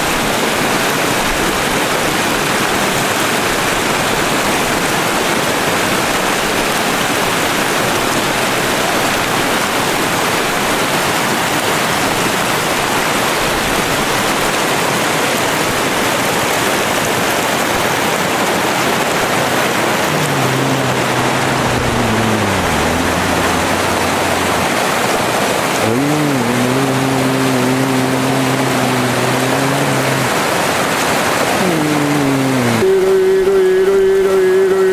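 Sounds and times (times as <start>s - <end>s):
water rushing over rocks: 0.0s - 34.9s
low droning tone: 20.0s - 30.5s.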